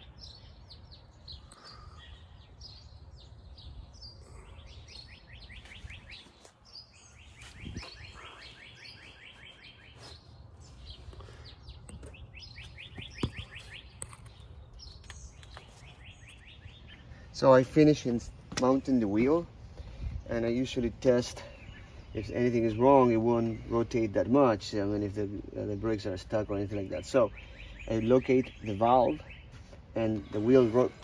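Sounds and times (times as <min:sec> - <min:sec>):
birds trilling: 0:00.0 - 0:31.0.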